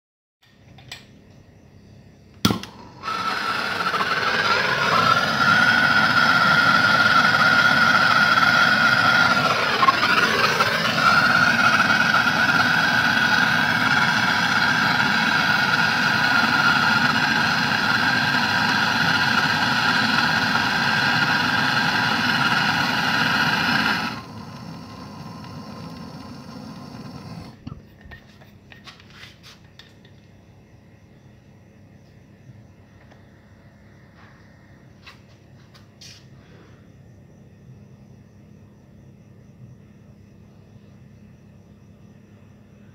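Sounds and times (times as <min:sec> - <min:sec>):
blowtorch igniter click: 0:02.4 - 0:04.1
blowtorch hissing: 0:02.5 - 0:27.8.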